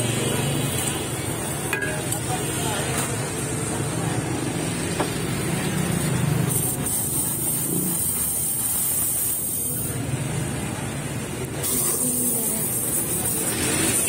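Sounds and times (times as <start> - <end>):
steam wand hissing: 6.4 - 10.0, 11.5 - 14.0.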